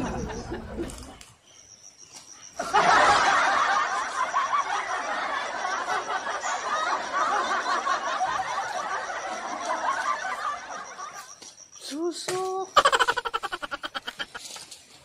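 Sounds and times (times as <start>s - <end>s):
laugh track: 2.6s - 11.4s, 12.7s - 14.5s.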